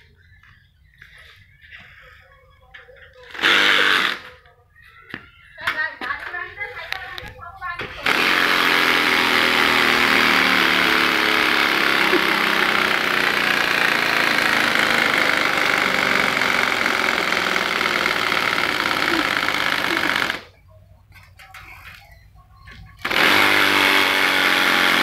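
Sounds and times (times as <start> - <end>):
motorbike-like engine running: 8.0 - 20.5.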